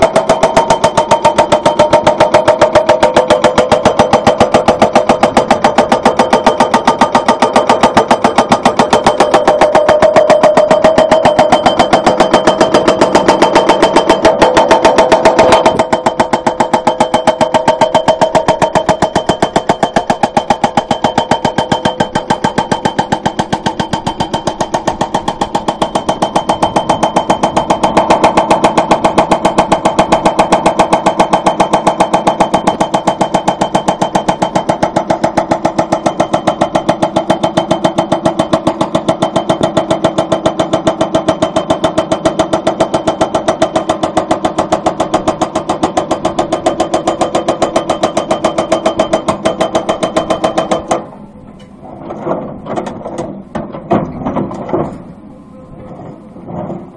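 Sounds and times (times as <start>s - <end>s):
hydraulic breaker hammering rock: 0.0s - 56.9s.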